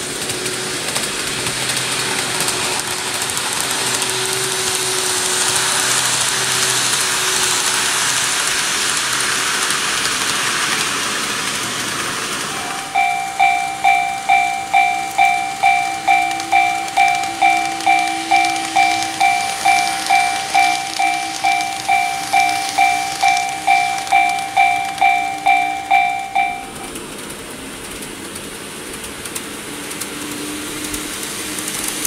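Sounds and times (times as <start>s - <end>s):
train rushing hiss: 0.0s - 32.0s
level-crossing warning bell: 12.4s - 27.5s.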